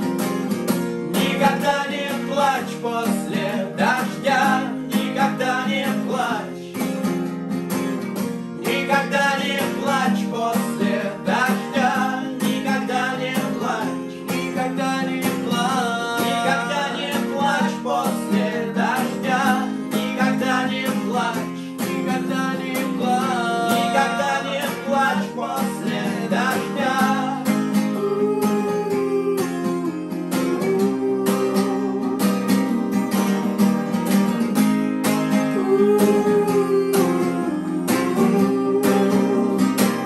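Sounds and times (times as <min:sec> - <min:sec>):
acoustic guitars strummed: 0:00.0 - 0:40.0
men singing: 0:01.0 - 0:07.0, 0:08.6 - 0:33.4, 0:35.3 - 0:40.0.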